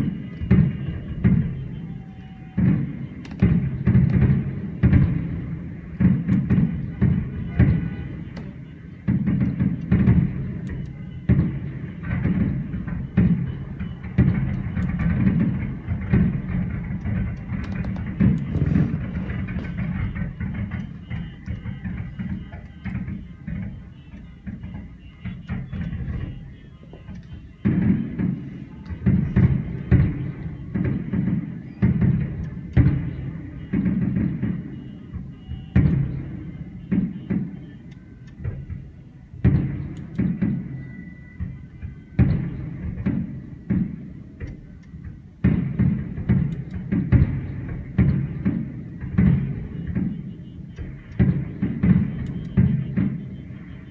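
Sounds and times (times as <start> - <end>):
faint fireworks crackling: 0.0 - 53.9
fireworks booming: 0.0 - 53.9
rumbling echo: 0.0 - 53.9.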